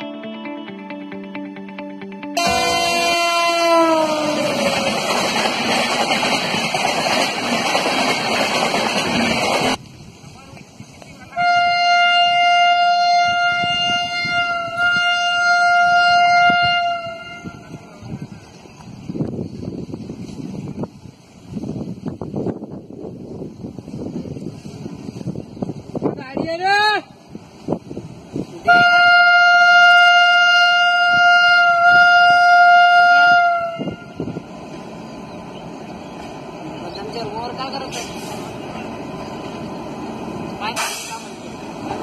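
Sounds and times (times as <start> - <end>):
locomotive air horn blast: 2.4 - 4.7, 11.3 - 17.7, 28.6 - 34.3.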